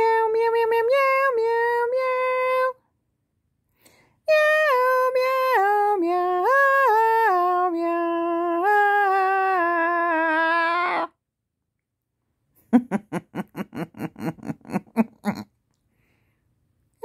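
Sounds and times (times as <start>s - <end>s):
woman singing wordless melody: 0.0s - 2.9s, 4.2s - 11.2s.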